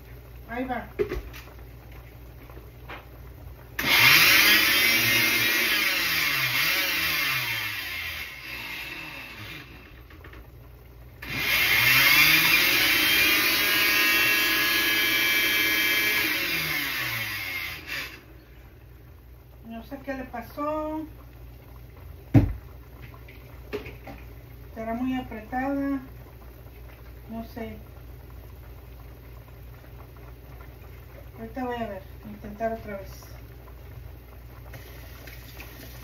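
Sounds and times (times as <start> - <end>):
electric grinder motor: 3.8 - 10.0, 11.2 - 18.2.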